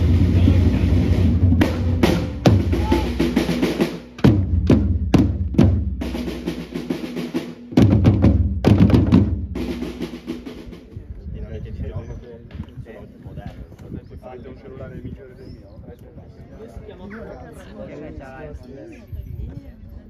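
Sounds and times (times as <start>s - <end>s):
drums playing: 0.0s - 11.0s.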